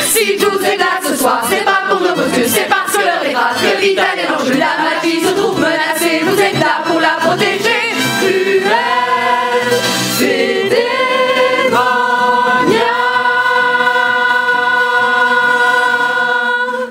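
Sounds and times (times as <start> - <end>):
cast singing together: 0.0 - 16.9.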